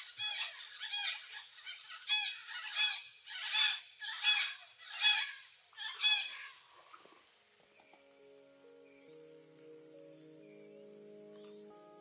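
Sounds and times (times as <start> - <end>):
parrots calling harshly: 0.0 - 6.6.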